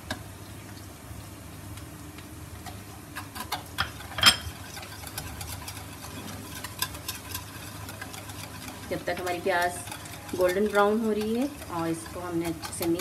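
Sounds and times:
low steady hum: 0.0s - 13.0s
whisk clicking against bowl: 4.6s - 13.0s.

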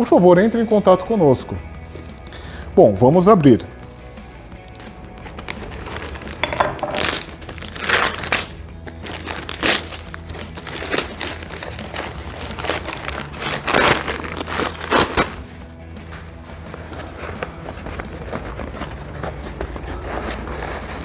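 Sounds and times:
quiet background music: 0.0s - 21.0s
paper tearing and crinkling: 4.7s - 15.6s.

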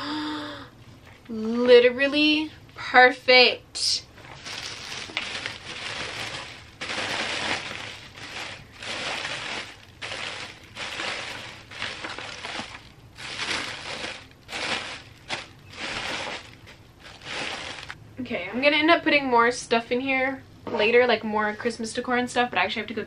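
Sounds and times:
plastic packing crinkling: 4.1s - 18.0s.

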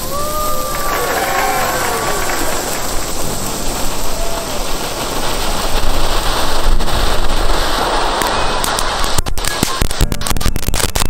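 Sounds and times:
firework fountain hissing: 0.0s - 11.0s.

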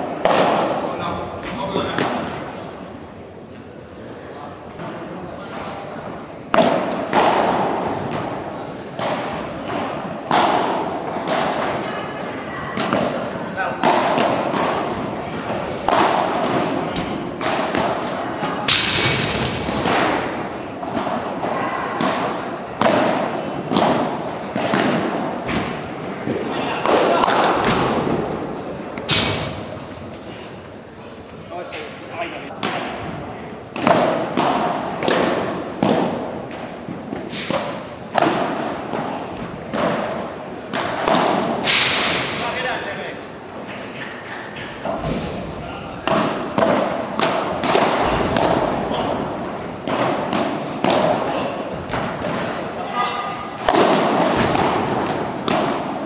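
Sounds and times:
racket striking ball: 6.5s - 11.8s, 12.8s - 25.9s, 28.9s - 30.2s, 33.7s - 42.6s, 44.8s - 52.8s, 53.5s - 56.0s
ball bouncing on court and glass: 18.7s - 21.1s.

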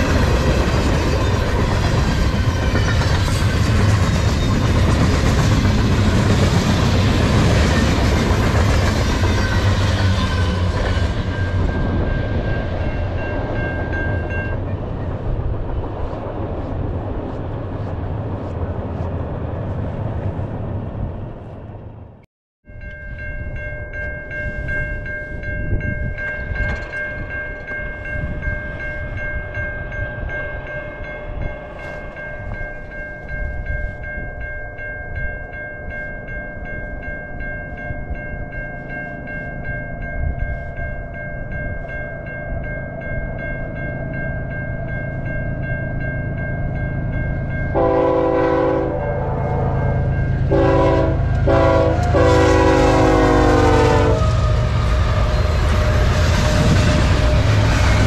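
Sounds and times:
crossing warning bell ringing: 0.0s - 15.4s, 22.6s - 58.0s
freight train rumble: 0.0s - 58.0s
locomotive air horn blasts: 47.7s - 55.2s.

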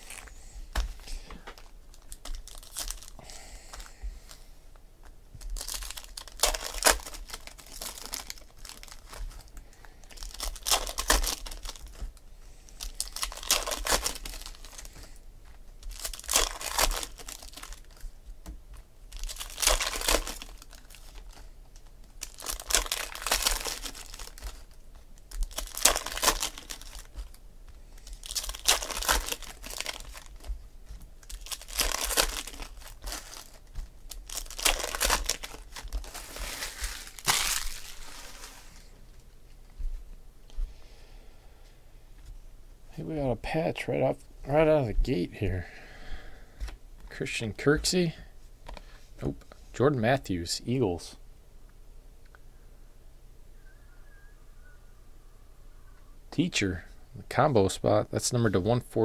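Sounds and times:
foil wrappers crinkling and tearing: 0.0s - 0.3s, 1.0s - 4.4s, 5.4s - 15.1s, 15.8s - 18.1s, 18.7s - 30.6s, 31.2s - 38.9s.

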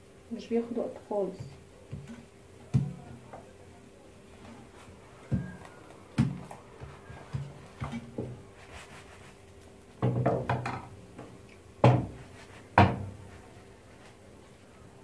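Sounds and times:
hard objects knocking in kitchen: 1.4s - 3.5s, 5.2s - 8.5s, 10.0s - 13.3s.

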